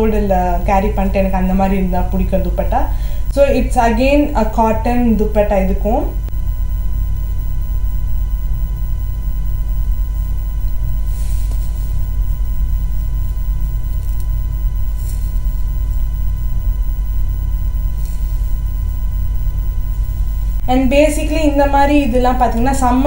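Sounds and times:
steady low rumble: 0.0 - 23.0
thin steady tone: 0.0 - 23.0.

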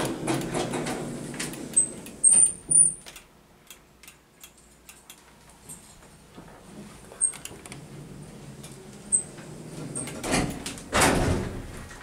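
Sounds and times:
sliding doors moving: 0.0 - 3.0, 6.5 - 12.0.

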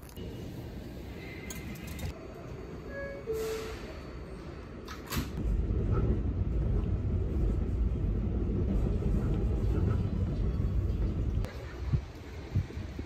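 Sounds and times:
train rumble: 0.2 - 13.0
subway doors hissing shut: 2.9 - 6.2.

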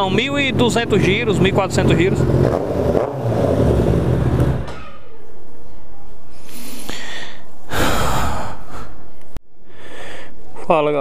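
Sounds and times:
loud breaths: 6.3 - 10.5.

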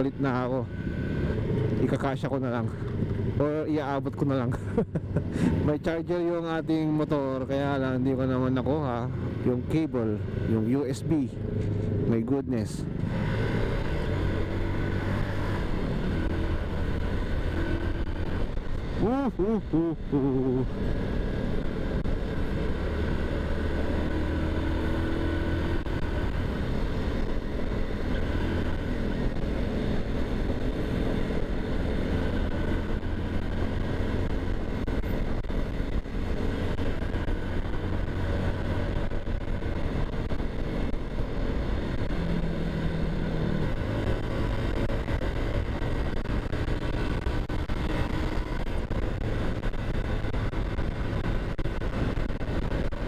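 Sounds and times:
motorcycle engine running: 13.2 - 53.0.

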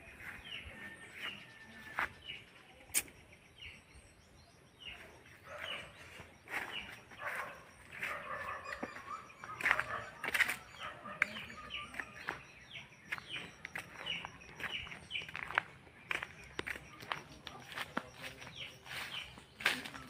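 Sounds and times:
footsteps on path: 0.0 - 2.5, 4.9 - 20.0
chickens clucking: 6.5 - 12.4.

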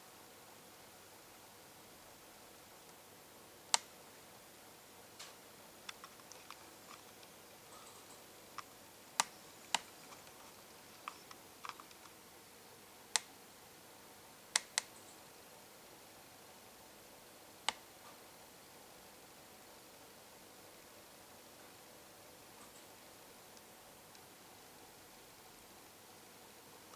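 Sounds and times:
faint steady hiss: 0.0 - 26.9
sharp clicks and ticks: 5.2 - 12.2.

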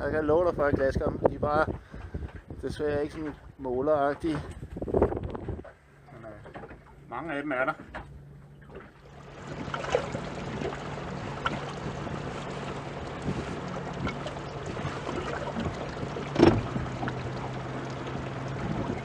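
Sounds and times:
wind: 0.0 - 19.0
boat engine humming: 3.2 - 19.0
sea noise: 8.2 - 19.0.

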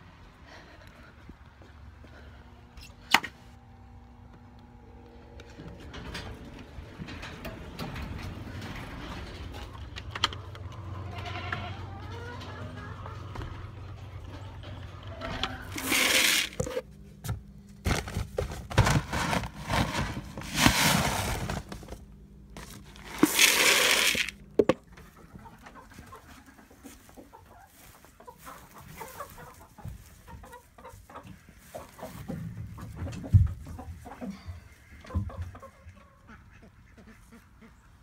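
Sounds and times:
chickens clucking: 9.6 - 17.1, 23.1 - 38.0.

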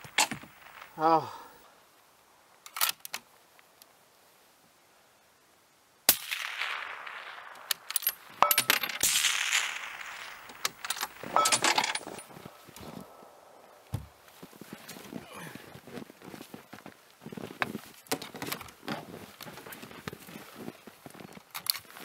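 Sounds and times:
rifle shot echoing: 6.1 - 12.3
metallic clicks and clinks: 7.7 - 9.1, 10.4 - 12.3.

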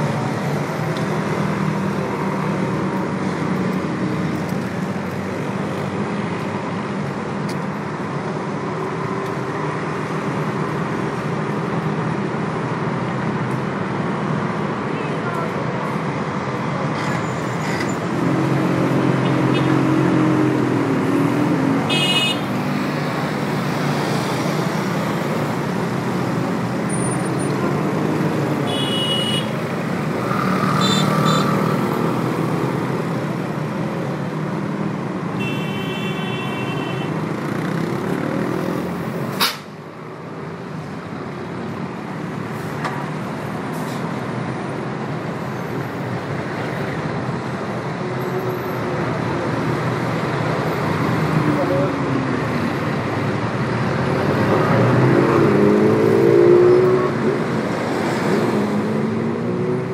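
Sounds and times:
road traffic: 0.0 - 59.9
sharp click: 39.4 - 39.7.

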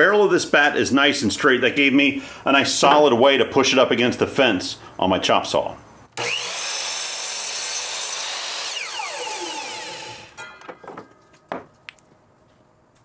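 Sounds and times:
chop saw cutting wood: 6.2 - 10.4
motor winding down whine: 8.3 - 10.4.

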